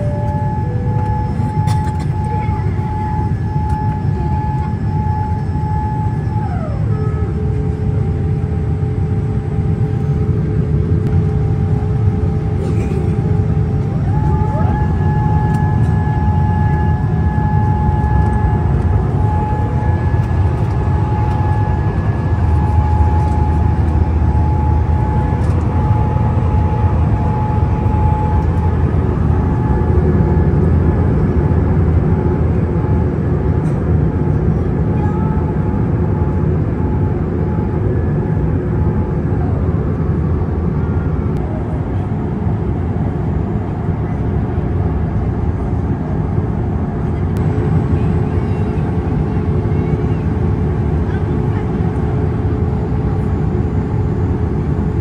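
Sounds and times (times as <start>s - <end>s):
airliner cabin rumble: 0.0s - 55.0s
faint high whine: 13.2s - 31.3s.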